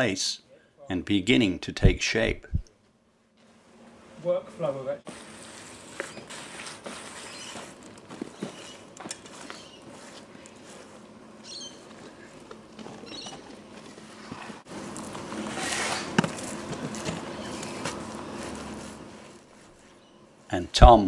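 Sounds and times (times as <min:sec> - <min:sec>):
clay rustling crumble: 0:05.1 - 0:20.5.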